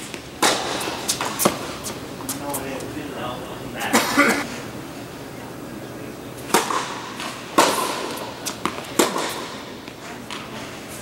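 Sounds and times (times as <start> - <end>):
tennis racket hitting ball: 0.0 - 2.4, 6.5 - 10.5
tennis ball bouncing on court: 0.1 - 1.7, 6.5 - 10.5.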